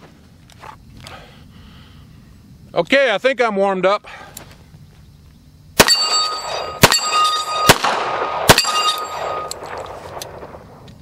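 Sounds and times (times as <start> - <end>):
steel plate target clanging: 5.8 - 7.8, 8.5 - 9.8
pistol shots: 5.8 - 10.6.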